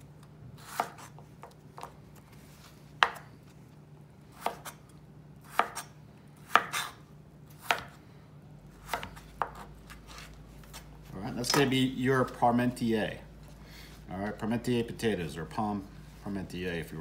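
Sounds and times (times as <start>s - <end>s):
knife chopping on cutting board: 0.6s - 2.0s, 3.0s - 3.3s, 4.4s - 4.8s, 5.4s - 8.0s, 8.8s - 10.8s.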